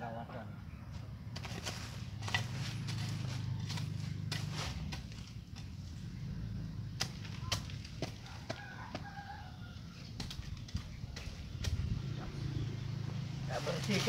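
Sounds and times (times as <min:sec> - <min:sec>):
blade chopping into soil: 0:01.3 - 0:05.7
steady low rumble: 0:09.9 - 0:13.6.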